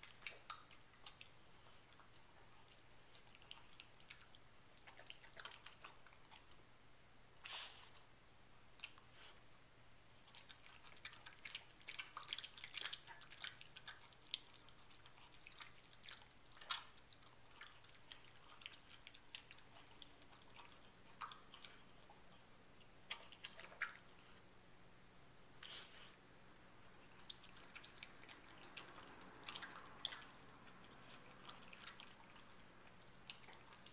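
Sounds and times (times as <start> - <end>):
dog eating from metal bowl: 27.2 - 33.9.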